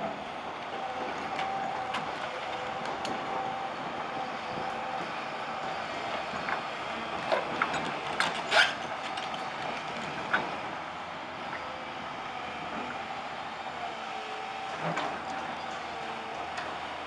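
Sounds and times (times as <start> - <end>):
excavator engine running: 0.0 - 17.0
metallic clanks of steel tracks: 6.2 - 10.8.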